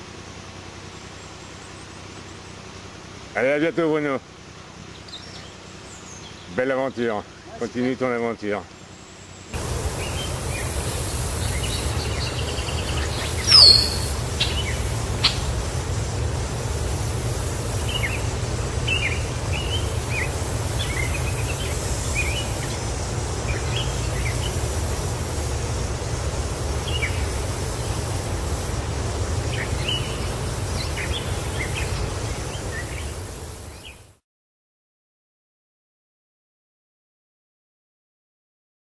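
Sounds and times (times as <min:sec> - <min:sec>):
small birds chirping: 0:00.6 - 0:34.2
steady low rumble: 0:09.4 - 0:34.0
shrill bird call: 0:09.9 - 0:15.6, 0:17.6 - 0:24.8, 0:29.5 - 0:33.2.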